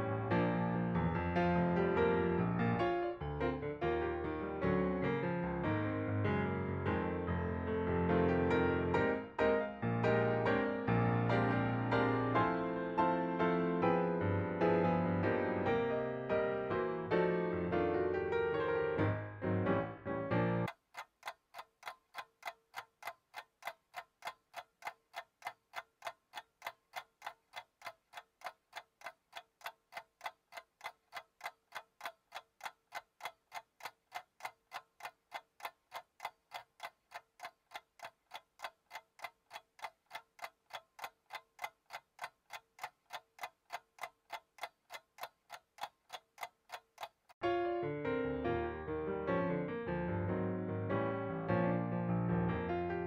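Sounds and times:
clock ticking: 20.6s - 47.4s.

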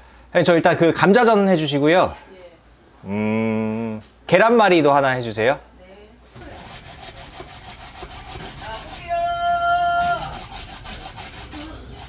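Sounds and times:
potato grating on metal grater: 6.4s - 12.0s.

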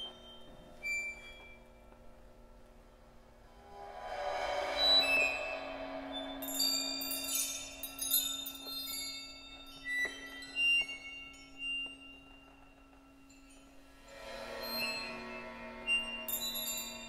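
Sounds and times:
ringing metallic strikes: 3.4s - 17.0s.

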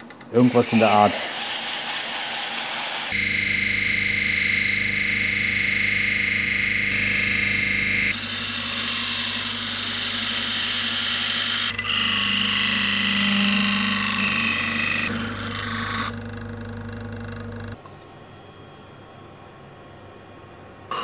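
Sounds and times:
lathe motor hum: 0.0s - 17.8s
chisel scraping spinning wood: 8.2s - 17.7s.

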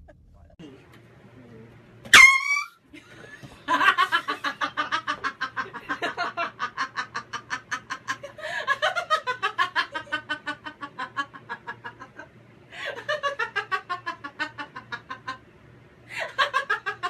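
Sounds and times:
sharp shriek: 2.1s - 2.8s.

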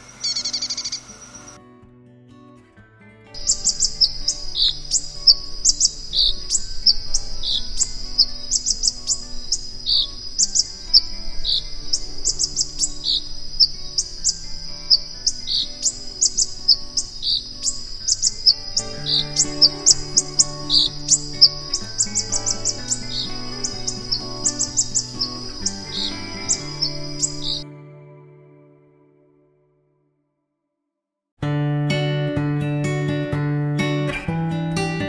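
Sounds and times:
bird singing rapid high song: 0.2s - 1.6s, 3.4s - 27.6s
steady high tone: 3.4s - 28.5s.

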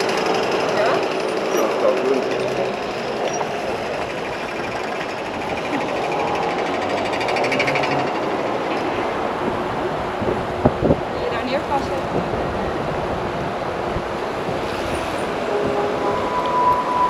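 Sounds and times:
fast mechanical rattle: 0.0s - 8.8s
engine and road noise: 0.0s - 17.0s.

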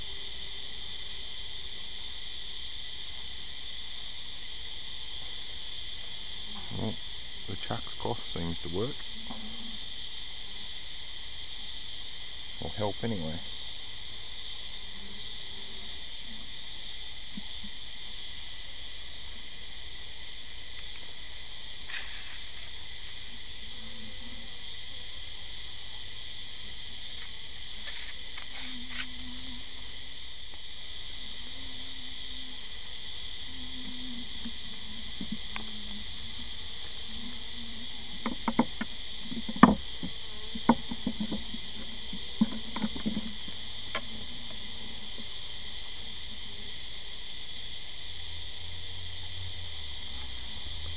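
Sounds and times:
high-pitched insect chorus: 0.0s - 50.9s
wooden frames knocking and clicking: 38.2s - 41.6s.

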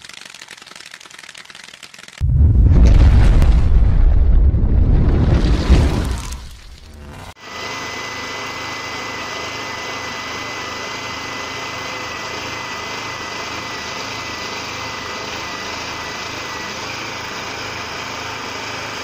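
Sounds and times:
small petrol engine running: 0.0s - 2.2s, 6.9s - 19.0s.

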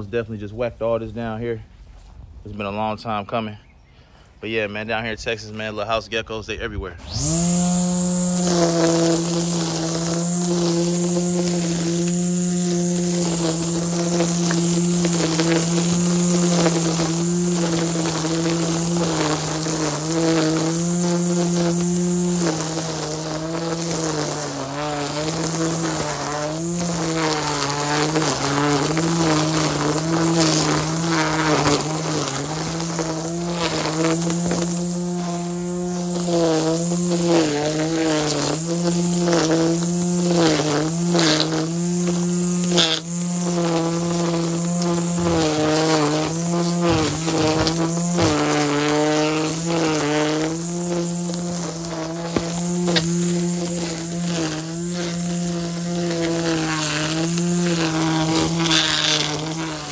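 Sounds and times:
string trimmer motor whining: 6.4s - 59.9s.

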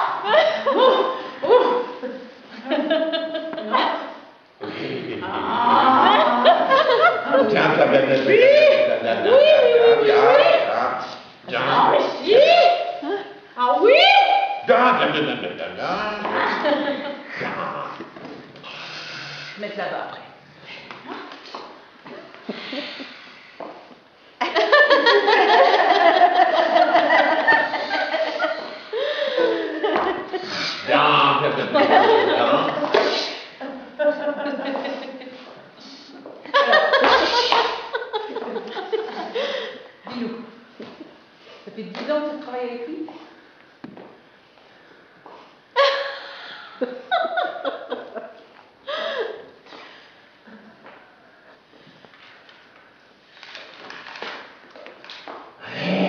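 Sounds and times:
audience laughing: 31.5s - 33.0s.

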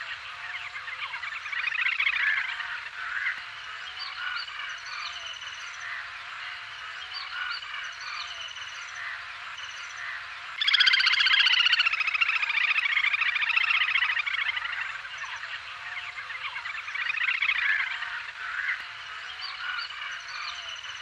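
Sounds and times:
grebe calling with trill: 10.6s - 18.8s.

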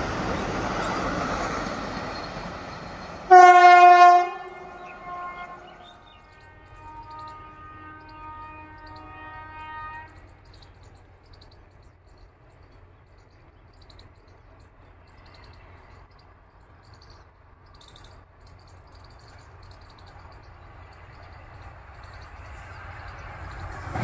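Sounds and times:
insects chirping: 0.0s - 3.3s, 4.4s - 24.0s
distant locomotive horn: 3.2s - 10.7s.

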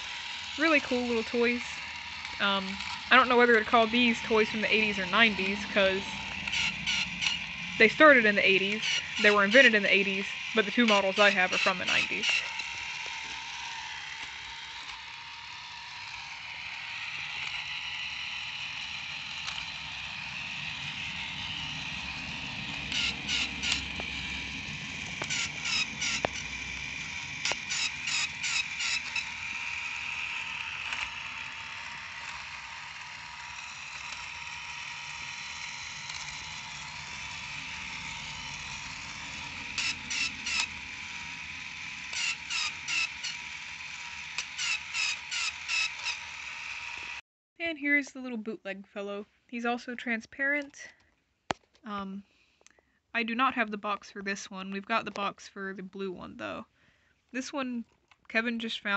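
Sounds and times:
toy motor whirring: 0.0s - 47.2s, 58.3s - 58.9s
quick ratchet-like clicks: 25.2s - 47.2s.

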